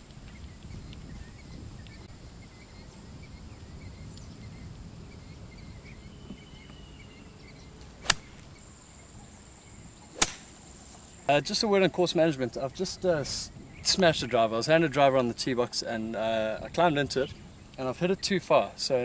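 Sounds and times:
wind on microphone: 0:00.0 - 0:08.6, 0:13.0 - 0:14.8
insect drone with chirps: 0:00.3 - 0:13.9
golf club striking ball: 0:08.0 - 0:08.6, 0:10.1 - 0:10.7.

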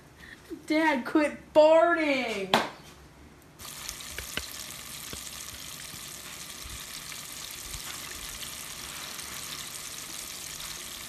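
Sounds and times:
food sizzling in hot oil: 0:03.6 - 0:11.0.

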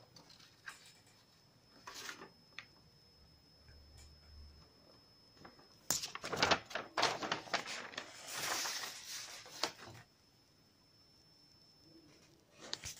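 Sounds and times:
paper sheets rustling: 0:05.9 - 0:10.1.

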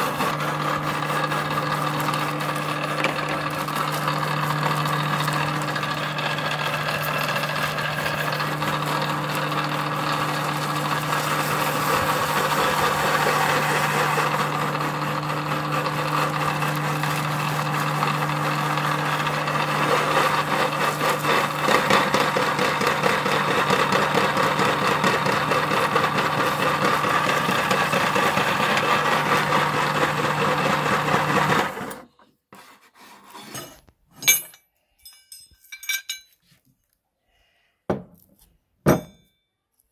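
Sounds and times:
dry crunching and rasping: 0:00.0 - 0:23.0
meat grinder motor hum: 0:00.0 - 0:32.1
short metallic clinks: 0:34.2 - 0:36.4.

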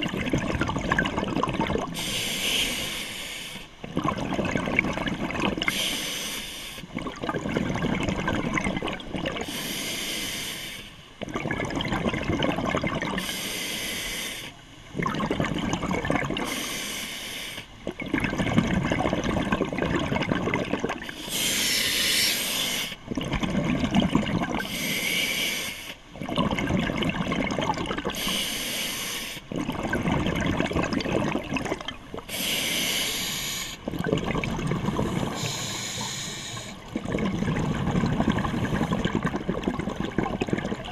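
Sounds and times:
exhaled bubbles rushing: 0:00.0 - 0:02.0, 0:03.8 - 0:05.7, 0:06.9 - 0:09.4, 0:11.2 - 0:13.2, 0:15.0 - 0:16.5, 0:17.8 - 0:21.1, 0:23.1 - 0:24.7, 0:26.2 - 0:28.2, 0:29.5 - 0:32.3, 0:33.8 - 0:40.9
regulator hissing inhale: 0:02.0 - 0:03.7, 0:05.7 - 0:06.8, 0:09.5 - 0:11.0, 0:13.2 - 0:14.6, 0:16.4 - 0:17.7, 0:21.1 - 0:23.0, 0:24.6 - 0:26.0, 0:28.2 - 0:29.5, 0:32.3 - 0:33.8, 0:35.2 - 0:36.8.

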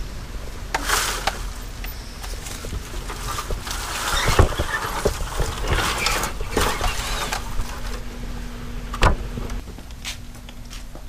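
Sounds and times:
leaves and twigs scraping ladder: 0:00.6 - 0:08.2.

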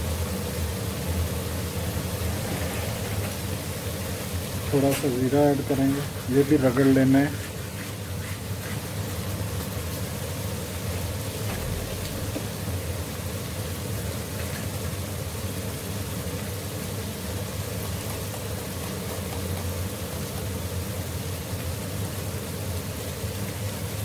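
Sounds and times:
food sizzling in hot oil: 0:00.0 - 0:24.0.

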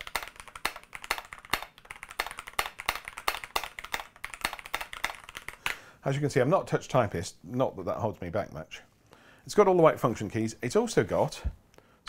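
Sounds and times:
mechanical keyboard typing: 0:00.0 - 0:05.7.

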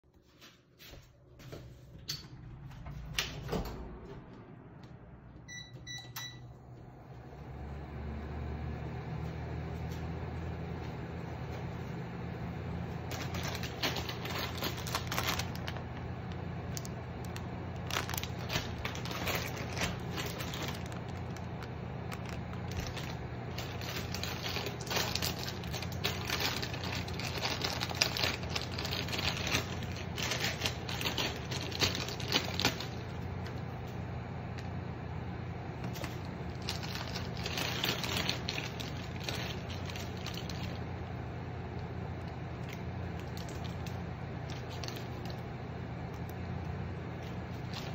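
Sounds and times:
steady low hum: 0:00.0 - 0:47.9
plastic packaging crinkling: 0:13.0 - 0:33.9, 0:35.8 - 0:47.9.

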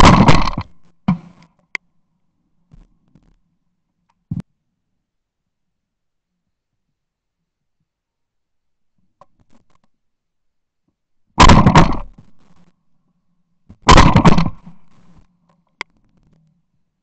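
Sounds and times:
clay target breaking: 0:00.0 - 0:01.3, 0:11.4 - 0:12.1, 0:13.9 - 0:14.9
shotgun blasts with echoes: 0:00.0 - 0:01.4, 0:11.4 - 0:12.2, 0:13.8 - 0:14.8.

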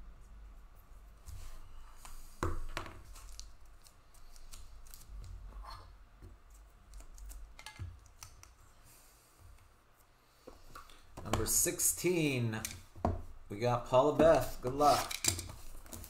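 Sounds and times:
plastic crinkling and clicking: 0:03.1 - 0:05.4.

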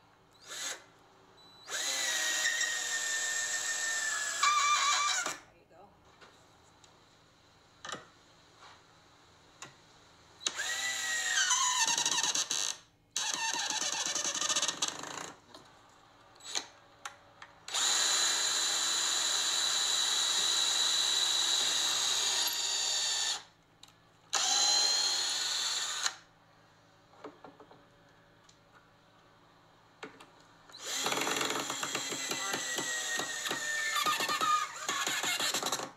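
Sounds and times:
cordless drill drilling into wood: 0:00.4 - 0:00.9, 0:01.6 - 0:05.4, 0:10.4 - 0:15.3, 0:17.7 - 0:23.5, 0:24.3 - 0:26.3, 0:30.8 - 0:35.9.

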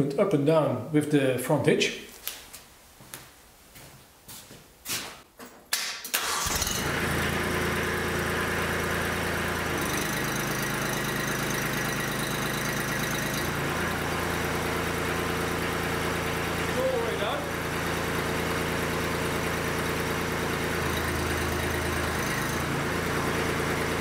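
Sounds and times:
hydraulic hitch working: 0:06.1 - 0:24.0
tractor diesel engine running: 0:06.2 - 0:24.0.

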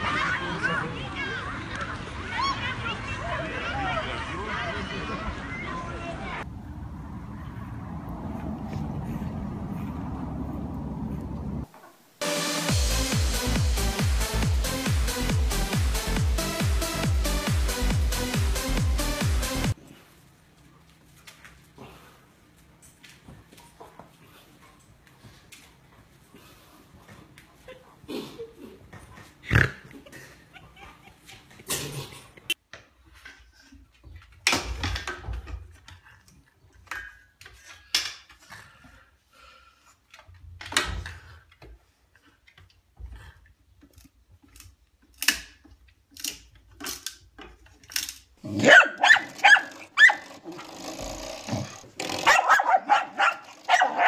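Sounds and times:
dogs barking: 0:48.5 - 0:50.3, 0:52.2 - 0:54.0.

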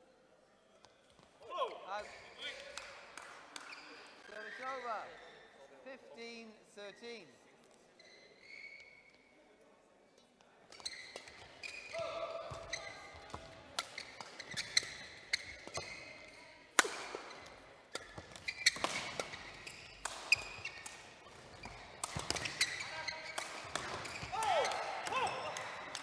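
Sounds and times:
shoes squeaking on court floor: 0:03.5 - 0:05.7, 0:06.9 - 0:09.4, 0:10.7 - 0:26.0
rackets hitting shuttlecock: 0:10.7 - 0:26.0.

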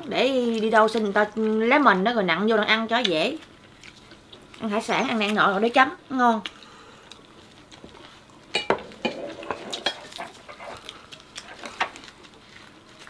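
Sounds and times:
utensils clinking against dishes: 0:08.6 - 0:10.8.

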